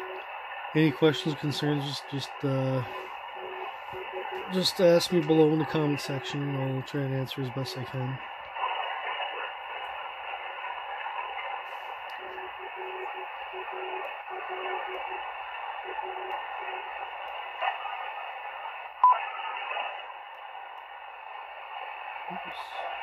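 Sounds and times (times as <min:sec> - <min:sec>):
morse code tone: 0:00.0 - 0:01.7, 0:02.8 - 0:04.8, 0:06.0 - 0:06.4, 0:12.2 - 0:16.9
radio band noise: 0:00.0 - 0:23.0.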